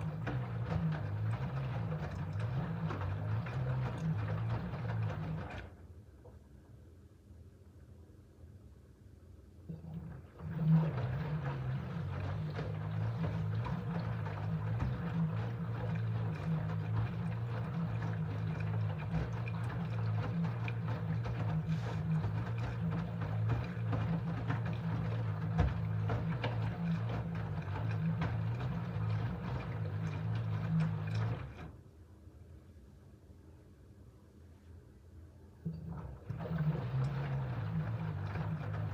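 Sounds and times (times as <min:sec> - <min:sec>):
laundry sloshing in water: 0:00.0 - 0:05.8, 0:09.7 - 0:31.8, 0:35.7 - 0:38.9
washing machine motor humming: 0:00.0 - 0:06.3, 0:09.6 - 0:31.9, 0:35.6 - 0:38.9.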